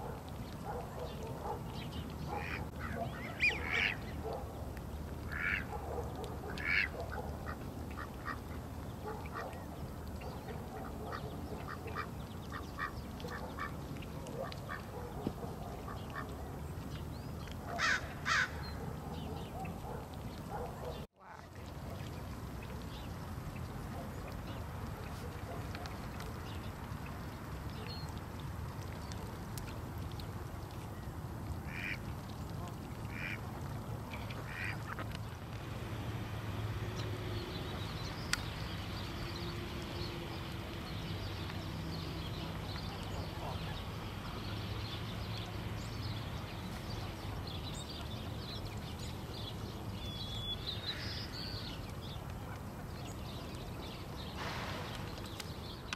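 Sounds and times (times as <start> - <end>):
ducks quacking: 2.3 - 4.0, 5.3 - 5.8, 6.4 - 9.5, 31.7 - 32.0, 33.1 - 33.4, 34.4 - 35.1.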